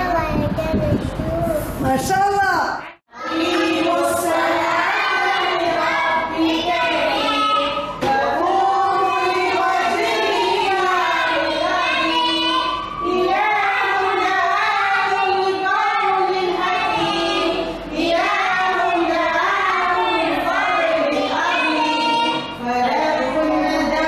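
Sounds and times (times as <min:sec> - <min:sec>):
child singing: 0:03.1 - 0:24.0.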